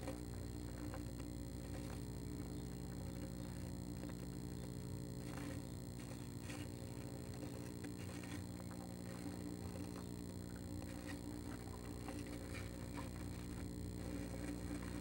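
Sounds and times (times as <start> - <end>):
steady electrical hum: 0.0 - 15.0
bird scratching on wood shavings: 5.2 - 10.1, 10.8 - 15.0.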